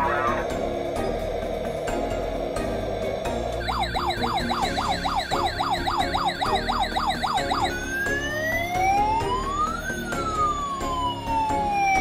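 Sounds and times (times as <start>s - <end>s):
toy electronic siren: 3.6s - 12.0s.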